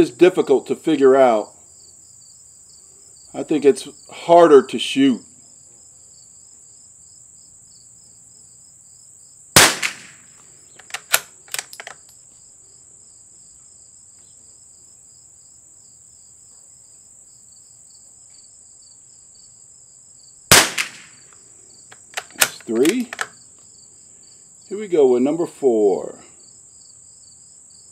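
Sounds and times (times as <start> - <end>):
insects droning: 0.0 - 27.9
rifle bolt clicks: 9.6 - 10.2, 10.8 - 12.2, 20.5 - 21.2, 21.9 - 23.4
rifle shot: 9.6 - 11.9, 20.5 - 21.2, 22.1 - 23.3.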